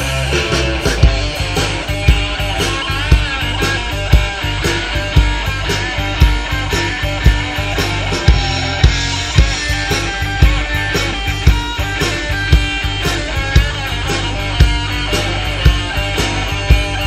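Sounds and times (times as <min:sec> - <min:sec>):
bass guitar: 0:00.0 - 0:17.0
drum kit beat: 0:00.0 - 0:17.0
electric guitar: 0:00.0 - 0:17.0.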